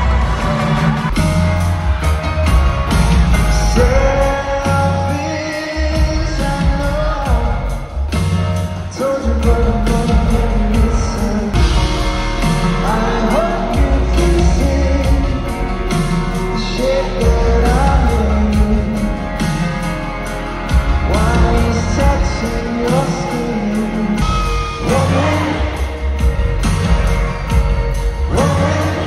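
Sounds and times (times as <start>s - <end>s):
lead vocal singing: 0.0s - 29.0s
live pop-rock band: 0.0s - 29.0s.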